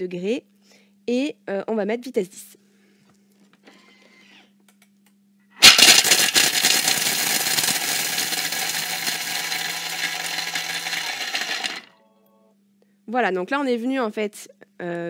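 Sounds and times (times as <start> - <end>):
blender grinding chocolate: 5.6 - 11.9.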